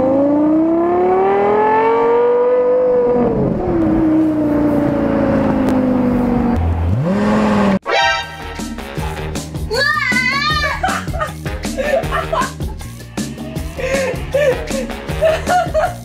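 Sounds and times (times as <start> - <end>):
car exhaust accelerating: 0.0 - 7.8.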